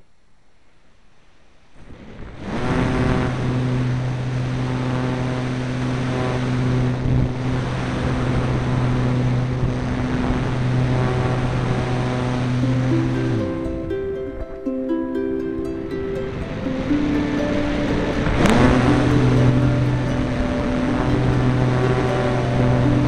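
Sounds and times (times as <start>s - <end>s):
wind rushing over camera: 1.7s - 12.7s, 17.1s - 22.1s
electric motor and propeller droning: 2.4s - 14.2s, 15.6s - 23.0s.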